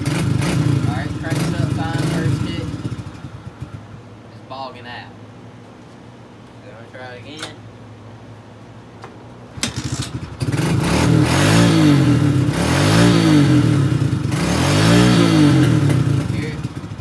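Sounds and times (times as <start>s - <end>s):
motorbike engine revving: 0.0s - 4.2s, 9.5s - 17.0s
exhaust misfiring: 0.0s - 4.9s, 9.5s - 17.0s.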